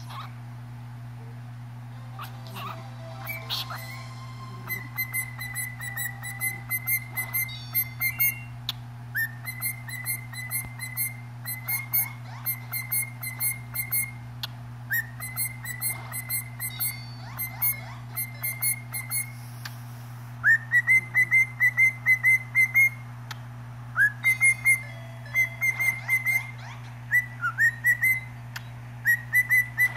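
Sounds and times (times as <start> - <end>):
low hum: 0.0 - 29.9
cockatiel whistling: 2.2 - 14.2, 14.9 - 19.4, 20.4 - 23.0, 24.0 - 28.4, 29.0 - 29.9.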